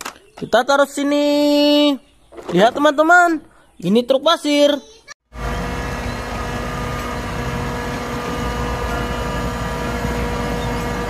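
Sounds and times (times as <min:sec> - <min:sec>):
truck diesel engine rumbling: 0:05.3 - 0:11.0
mechanical whine: 0:05.4 - 0:11.0.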